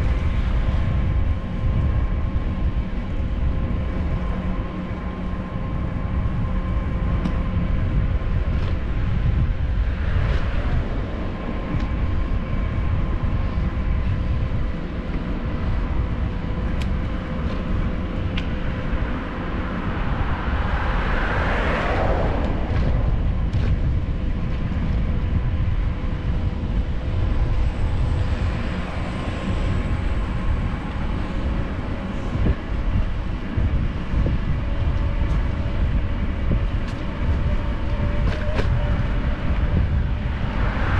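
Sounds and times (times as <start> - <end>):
traffic rumble: 0.0 - 40.9
vehicle passing: 19.6 - 24.2.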